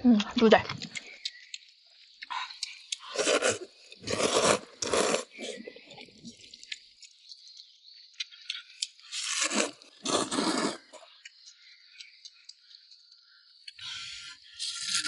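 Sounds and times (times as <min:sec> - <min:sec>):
person slurping and chewing noodles: 0:02.2 - 0:07.1, 0:08.2 - 0:11.3.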